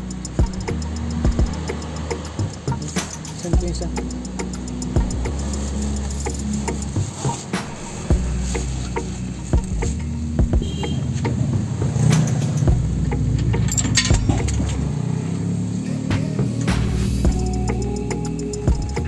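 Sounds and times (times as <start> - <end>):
steady low hum: 0.0 - 10.7, 15.8 - 19.0
wrench clinking on steel: 13.3 - 14.9.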